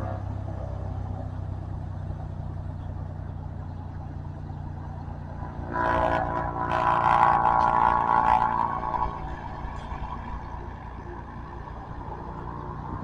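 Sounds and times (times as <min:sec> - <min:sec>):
turboprop engine drone: 0:00.0 - 0:13.0
high buzzing whine: 0:04.1 - 0:13.0.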